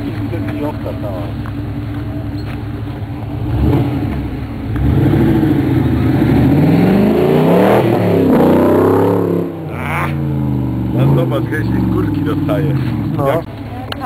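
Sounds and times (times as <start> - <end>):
engine revving hard: 3.4 - 13.4.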